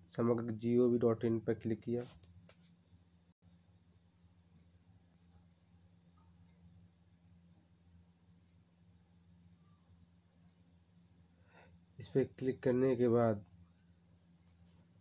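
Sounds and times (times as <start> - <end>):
cricket trilling: 0.0 - 15.0.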